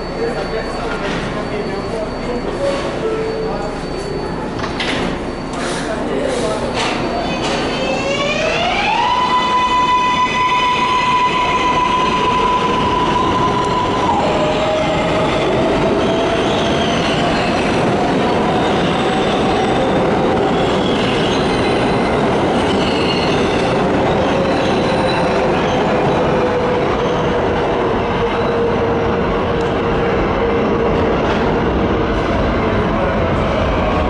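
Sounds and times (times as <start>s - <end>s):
train wheels rumbling on rails: 4.0s - 34.0s.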